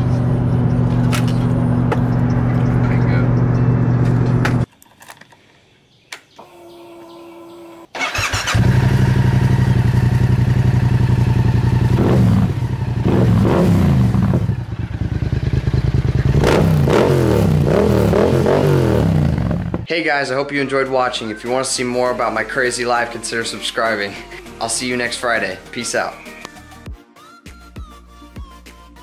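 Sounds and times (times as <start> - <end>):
motorcycle engine idling and revving: 0.0 - 4.7, 7.3 - 19.9
engine cranking: 7.8 - 9.0.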